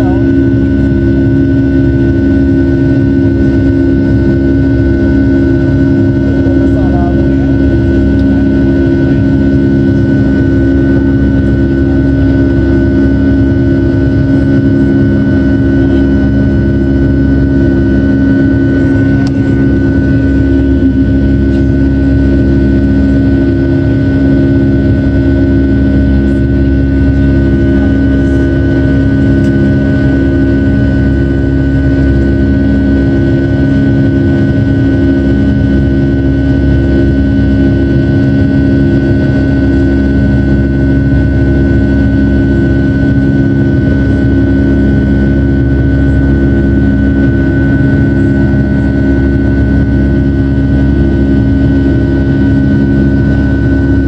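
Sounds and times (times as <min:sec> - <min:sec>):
constant low hum: 0:00.0 - 0:54.0
jet engine cabin drone: 0:00.0 - 0:54.0.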